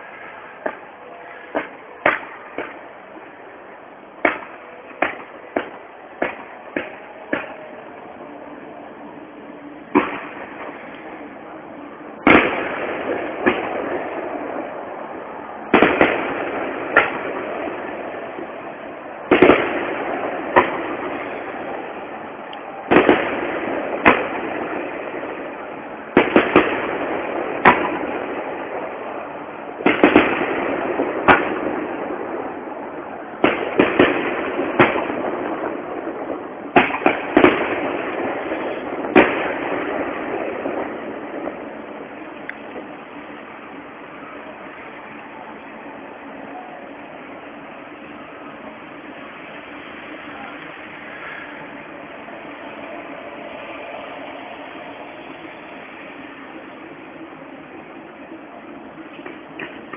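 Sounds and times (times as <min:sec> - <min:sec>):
firework shells bursting: 0:12.1 - 0:59.9.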